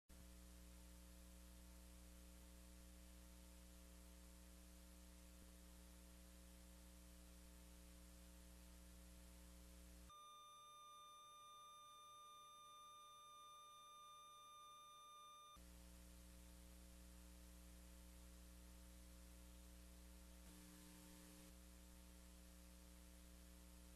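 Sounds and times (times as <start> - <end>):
faint hum with hiss: 0.1 - 23.9
faint high tone: 10.1 - 15.6.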